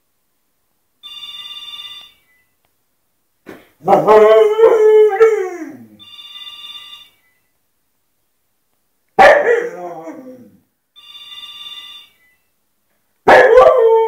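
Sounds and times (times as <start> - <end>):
telephone ringing: 1.0 - 2.6, 6.0 - 7.5, 11.0 - 12.6.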